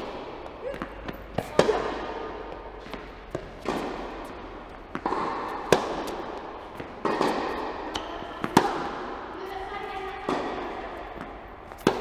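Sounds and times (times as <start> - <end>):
tennis ball hits echoing: 0.0 - 12.0.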